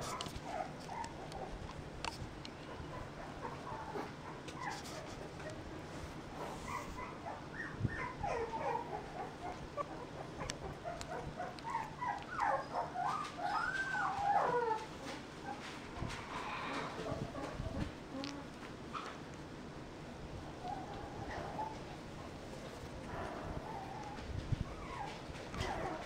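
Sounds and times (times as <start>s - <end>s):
puppy whining: 0.0s - 1.6s, 2.7s - 5.6s, 6.5s - 18.6s, 20.5s - 22.0s, 23.1s - 26.0s
puppies whimpering and squeaking: 6.5s - 15.8s, 20.6s - 21.9s, 23.5s - 26.0s.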